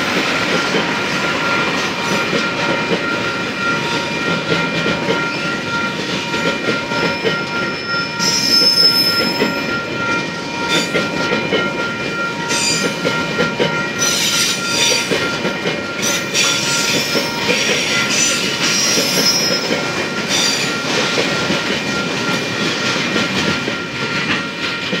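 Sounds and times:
crossing warning bell ringing: 0.0s - 25.0s
train wheels clattering over joints: 0.0s - 25.0s
high wheel squeal: 7.0s - 9.7s, 14.0s - 15.1s, 16.0s - 20.8s.

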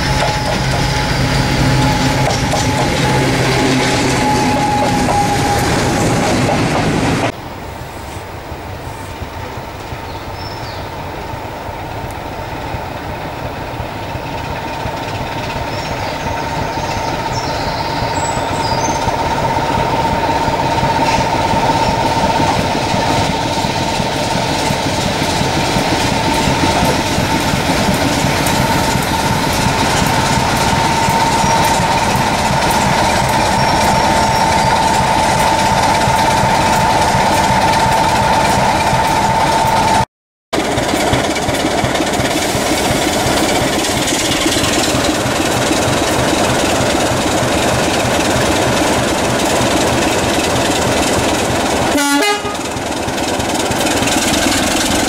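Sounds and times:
diesel locomotive engine: 0.0s - 55.0s
steady high whine: 11.0s - 40.0s.

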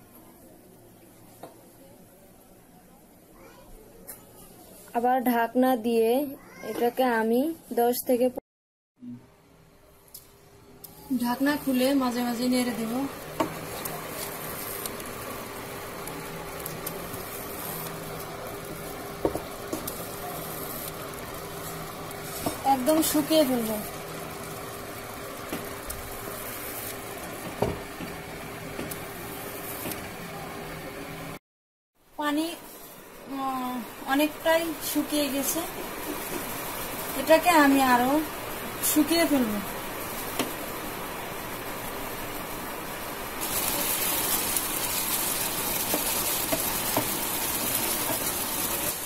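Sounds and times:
curry sizzling in a frying pan: 11.1s - 29.9s, 32.2s - 49.0s.

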